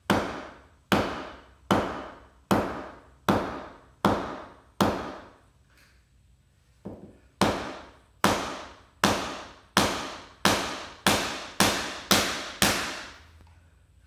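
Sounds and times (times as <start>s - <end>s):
mallet striking chisel: 0.1s - 5.3s, 6.9s - 13.1s.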